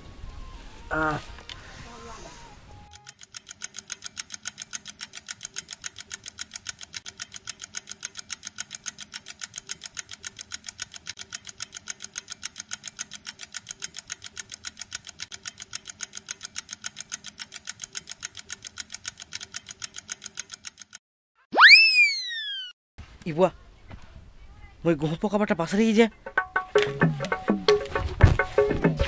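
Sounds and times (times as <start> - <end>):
fast clock ticking: 2.9 - 21.0.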